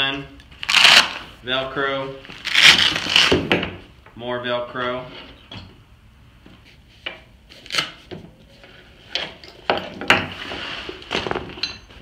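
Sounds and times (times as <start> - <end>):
hook-and-loop strips ripping: 0.6 - 1.3, 2.4 - 3.4.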